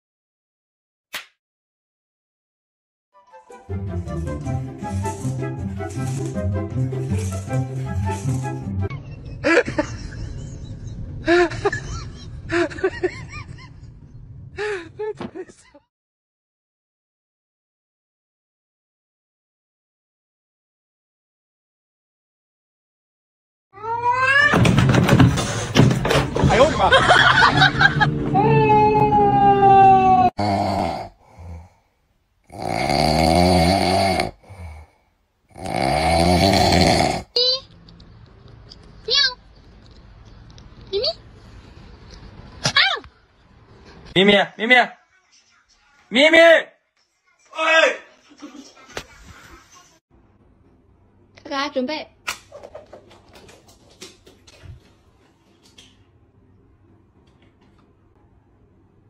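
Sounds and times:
background music: 3.2s - 8.9s
kitten snoring: 30.4s - 31.7s, 32.5s - 34.9s, 35.5s - 37.3s.

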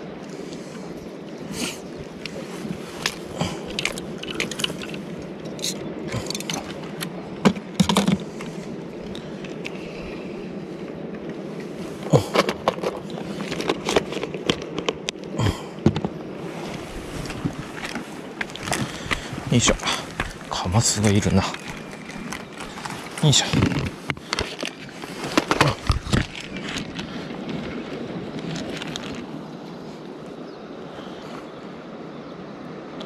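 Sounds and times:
steady background hiss: 0.0s - 33.0s
handling clicks and scrapes: 2.2s - 8.6s, 12.1s - 15.2s, 15.9s - 27.8s.

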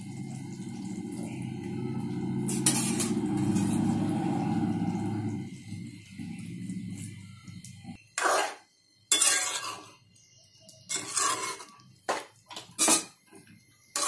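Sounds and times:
metal spatula scraping metal pan: 2.5s - 3.9s, 8.2s - 10.0s, 10.9s - 13.2s.

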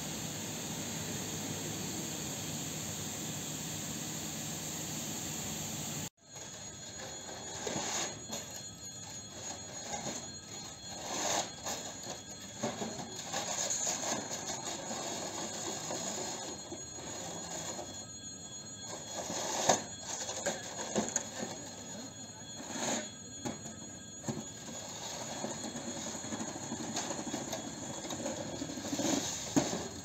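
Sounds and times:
electric warning bell ringing: 0.0s - 30.0s
scraping strokes on platform: 6.4s - 17.9s.

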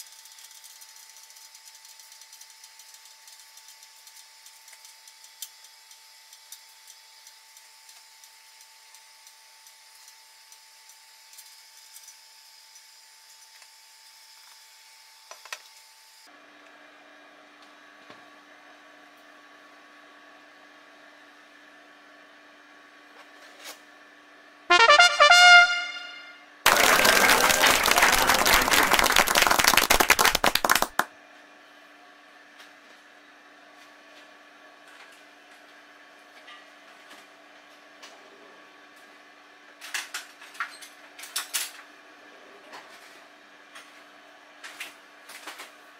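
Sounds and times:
crowd applause: 26.7s - 31.0s.

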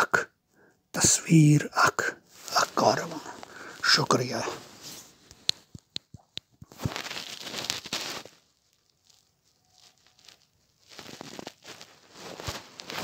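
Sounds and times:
rustling crinkling: 2.0s - 13.0s.

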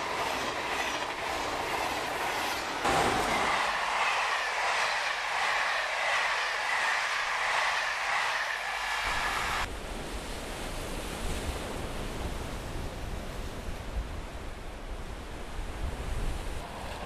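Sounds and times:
passing train: 0.0s - 9.7s, 15.2s - 17.0s
wind rumble on microphone: 9.1s - 17.0s.

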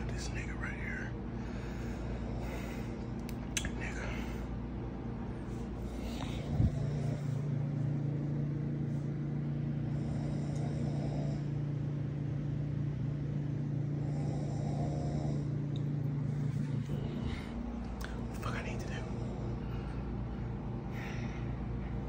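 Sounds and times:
steady low hum: 0.0s - 22.0s
person snoring: 9.9s - 11.5s, 14.0s - 15.5s.

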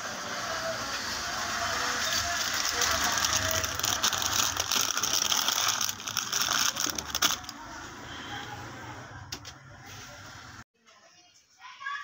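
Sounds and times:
plastic packets crinkling: 2.0s - 7.6s.

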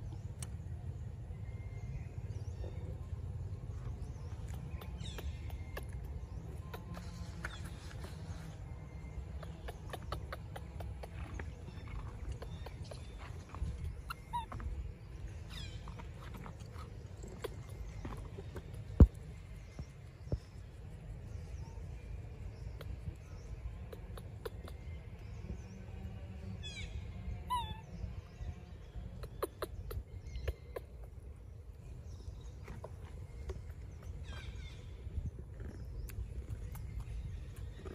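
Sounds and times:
steady low rumble: 0.0s - 37.9s.

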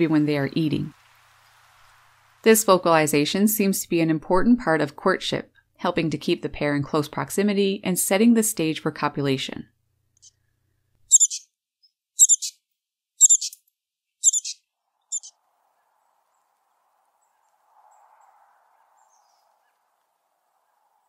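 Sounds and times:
chickadee calls: 11.1s - 11.5s, 12.2s - 12.6s, 13.2s - 13.6s, 14.2s - 15.4s.

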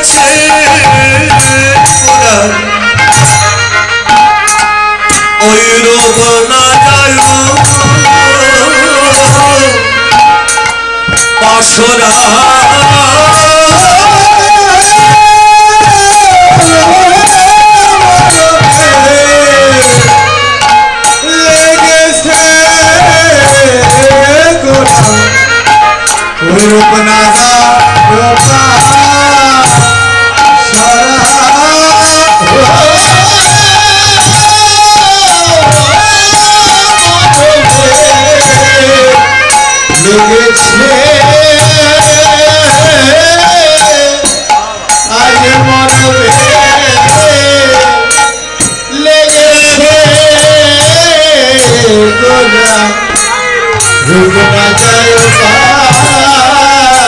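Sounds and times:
man singing into a microphone: 0.0s - 57.0s
hand drum rhythm: 6.0s - 11.5s, 12.2s - 48.8s.

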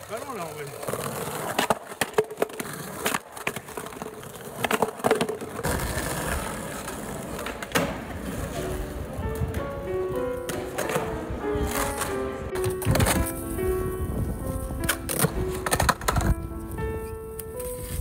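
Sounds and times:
skateboard clacking on pavement: 0.0s - 18.0s
skateboard wheels rolling: 0.0s - 18.0s
background music: 8.1s - 18.0s.

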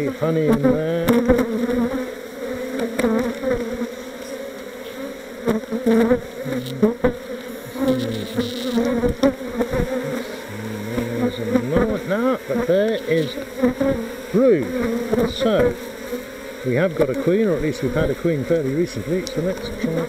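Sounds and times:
bees buzzing: 0.0s - 20.0s.

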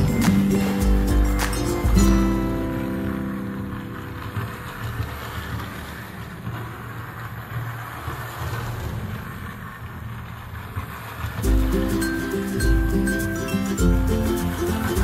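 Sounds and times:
toy train mechanical whir: 0.0s - 15.0s
toy train running on plastic track: 0.0s - 15.0s.

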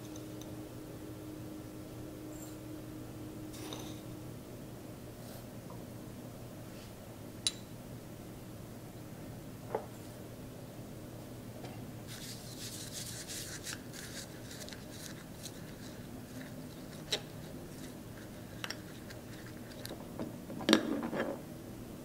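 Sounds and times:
spoon scraping coffee granules: 12.1s - 19.9s.

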